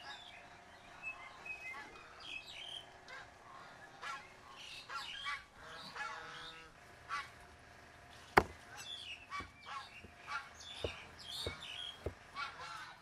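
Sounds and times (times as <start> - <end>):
birds calling: 0.0 - 13.0
cleaver knocking on chopping block: 8.4 - 8.6, 9.4 - 12.2.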